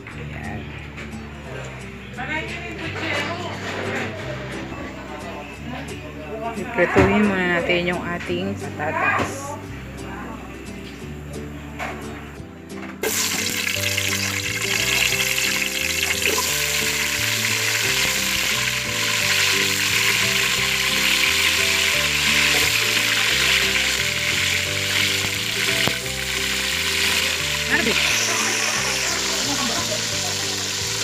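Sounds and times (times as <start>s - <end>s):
potatoes sizzling in hot oil: 13.0s - 31.0s.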